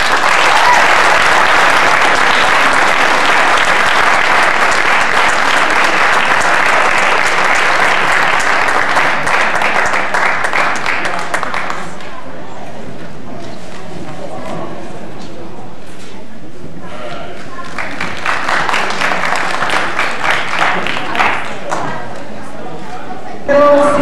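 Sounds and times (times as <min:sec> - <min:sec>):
audience applauding: 0:00.0 - 0:12.2, 0:17.5 - 0:22.2.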